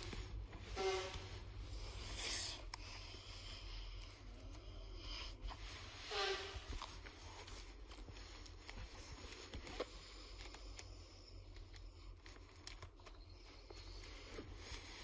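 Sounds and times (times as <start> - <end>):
low steady hum: 0.0 - 15.0
plastic sleeve pages rustling: 6.7 - 15.0.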